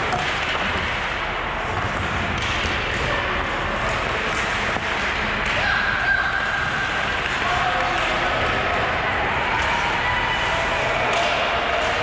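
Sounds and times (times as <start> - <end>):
clicks of sticks and puck: 0.0 - 3.1, 3.9 - 5.8, 6.8 - 8.8, 11.0 - 12.0.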